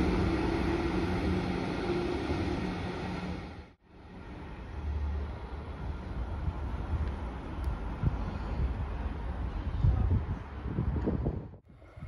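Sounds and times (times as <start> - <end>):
wind buffeting microphone: 5.8 - 12.0.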